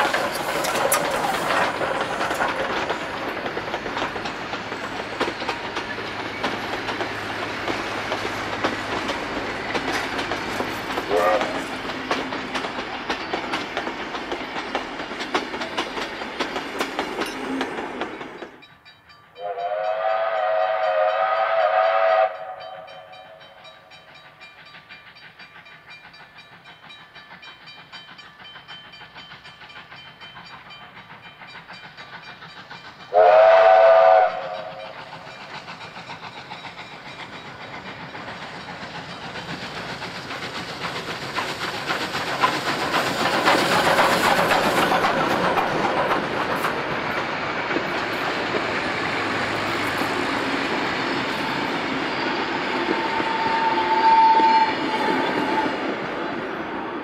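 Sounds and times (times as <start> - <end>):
carriage wheels clicking over rails: 0.0 - 18.6, 34.5 - 53.4
steam locomotive running: 0.0 - 57.0
steam whistle blasts: 11.1 - 11.7, 19.4 - 23.6, 33.1 - 35.0, 51.5 - 55.8.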